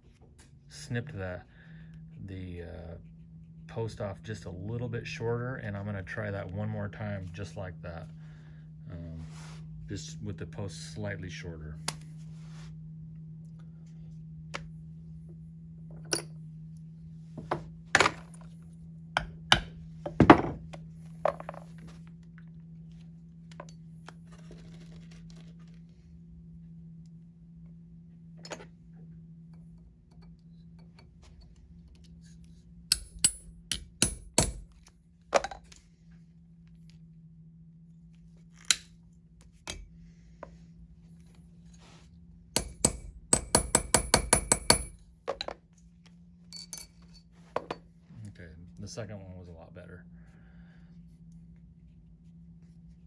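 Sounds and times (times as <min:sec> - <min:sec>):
hammer striking metal rivet setter: 0:32.9 - 0:34.6, 0:42.6 - 0:45.0.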